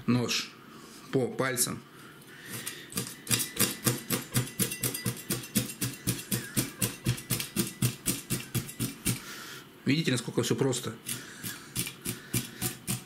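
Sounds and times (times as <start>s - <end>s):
knife chopping fish on cutting board: 11.8s - 13.0s.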